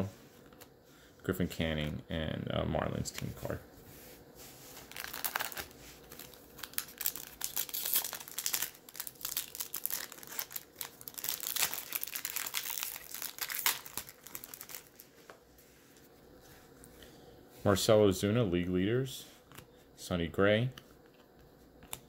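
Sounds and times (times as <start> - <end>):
foil wrapper crinkling and tearing: 4.8 - 15.1.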